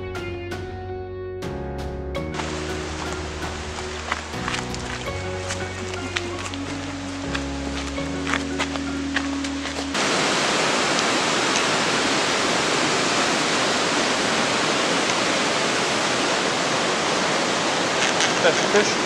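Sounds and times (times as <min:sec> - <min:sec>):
music: 0:00.0 - 0:10.0
rushing water: 0:02.3 - 0:19.0.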